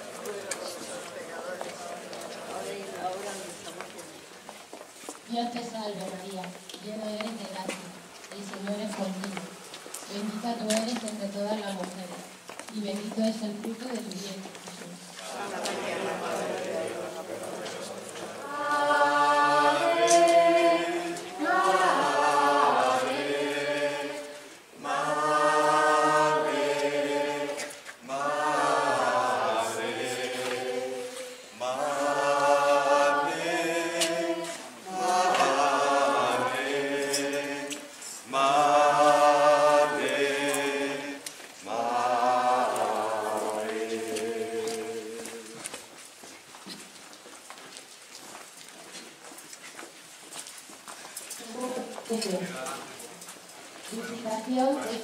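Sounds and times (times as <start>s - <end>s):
group chanting in unison: 15.2s - 45.6s.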